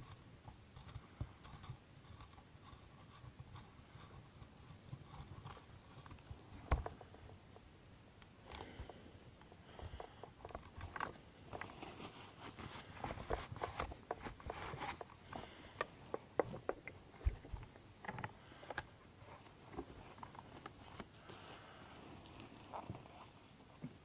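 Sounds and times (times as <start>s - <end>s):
cloth rubbing: 11.4s - 15.3s, 19.2s - 23.8s.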